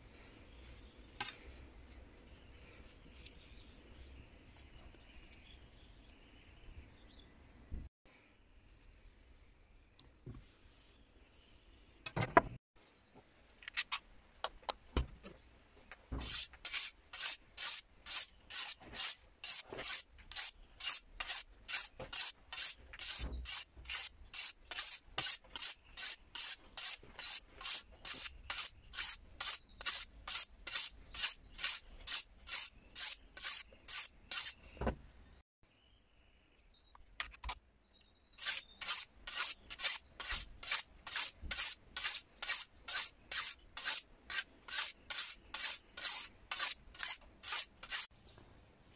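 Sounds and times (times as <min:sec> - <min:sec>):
sharpening stone on sickle blade: 0:16.2 - 0:34.6, 0:38.4 - 0:48.1.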